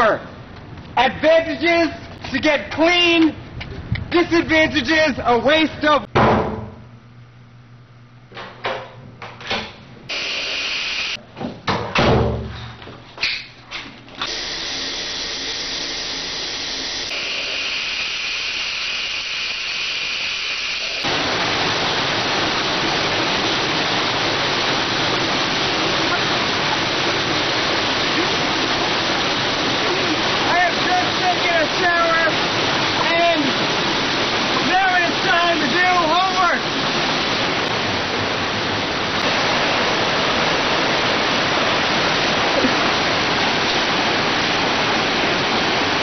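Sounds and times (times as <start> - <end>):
knocks and thumps: 6.1 - 6.8
shower running: 14.3 - 46.0.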